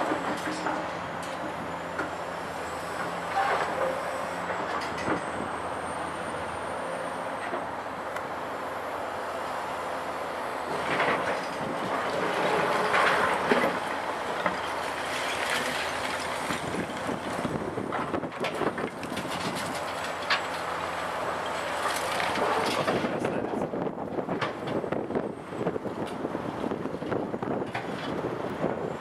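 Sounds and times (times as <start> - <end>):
excavator diesel engine running: 0.0 - 29.0.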